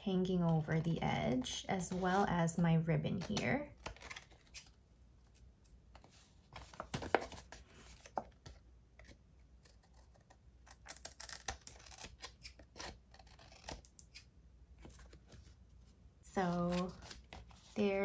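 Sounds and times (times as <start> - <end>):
scissors snipping paper: 9.6 - 14.3.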